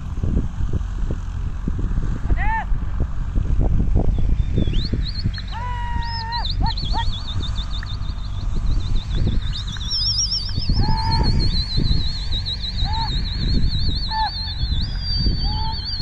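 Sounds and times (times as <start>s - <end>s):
wind rumbling on microphone: 0.0s - 16.0s
high warbling bird calls: 4.1s - 16.0s
short low bird calls: 4.3s - 16.0s.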